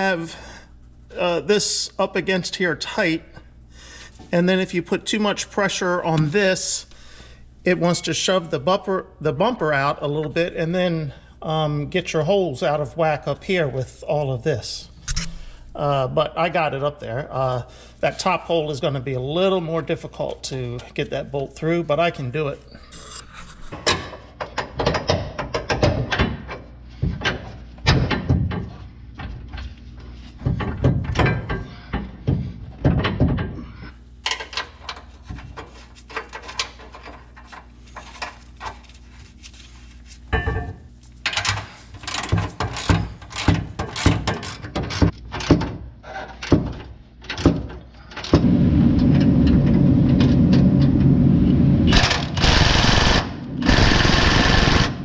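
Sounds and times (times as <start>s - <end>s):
cordless impact wrench running: 51.9s - 55.0s.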